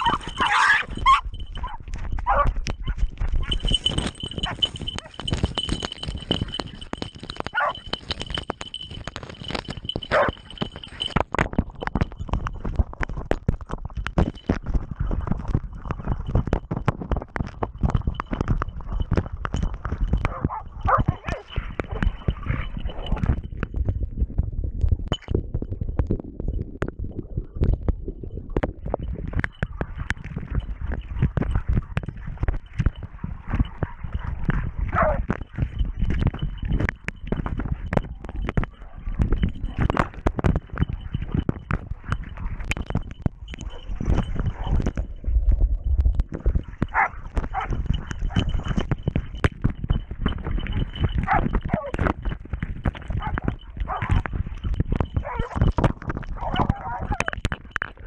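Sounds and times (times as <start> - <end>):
dogs barking and snarling: 0.0 - 5.7, 7.5 - 8.0, 10.0 - 11.1, 20.2 - 23.2, 33.6 - 35.4, 46.8 - 48.7, 50.7 - 52.0, 53.2 - 54.3, 55.1 - 55.7, 56.4 - 57.4
camera scraping against fur: 0.0 - 11.2, 46.1 - 49.0, 50.6 - 57.4.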